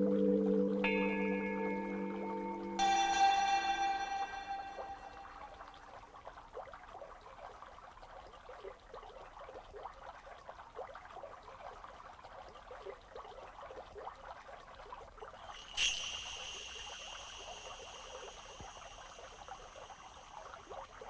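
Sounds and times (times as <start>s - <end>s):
ringing bell-like tone: 0.0s - 5.9s, 15.4s - 21.0s
water bubbling and trickling: 0.0s - 21.0s.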